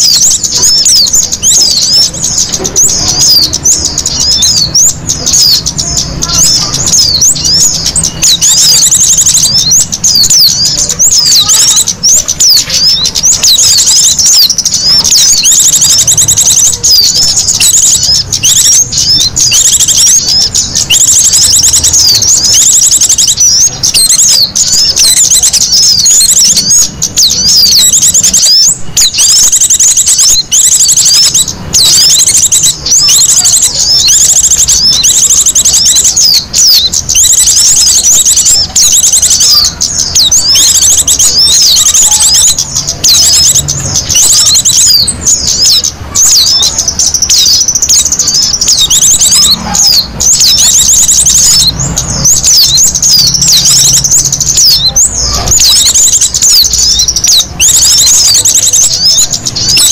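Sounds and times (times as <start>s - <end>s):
songbirds chirping: 0.0s - 59.9s.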